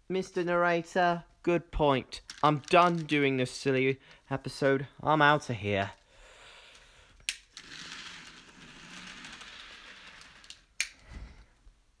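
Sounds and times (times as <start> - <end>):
toy train motor whirring: 6.8 - 10.9.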